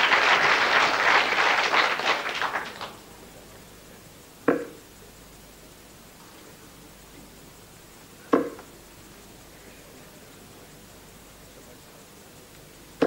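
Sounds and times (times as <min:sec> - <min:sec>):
crowd applause: 0:00.0 - 0:03.2
dart striking dartboard: 0:04.5 - 0:04.8, 0:08.3 - 0:08.6.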